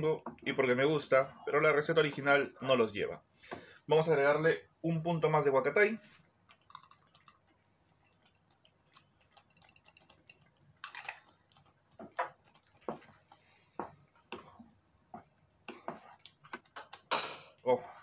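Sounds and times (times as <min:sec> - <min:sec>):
wooden spoon stirring stew: 0:11.2 - 0:17.1.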